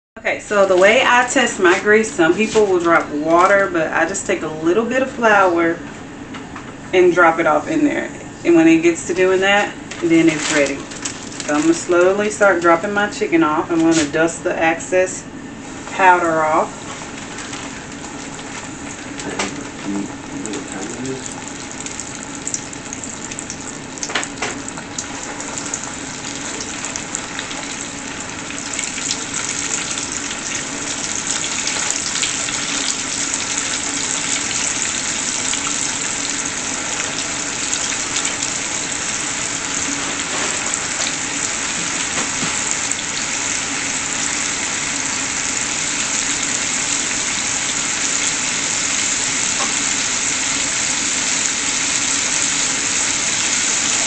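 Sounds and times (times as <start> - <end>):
chicken sizzling in hot grease: 20.8 - 54.0.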